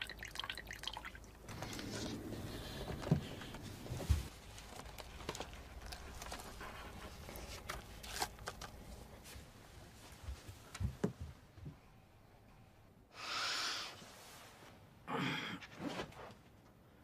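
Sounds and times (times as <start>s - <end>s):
quiet rustling: 1.5s - 11.8s.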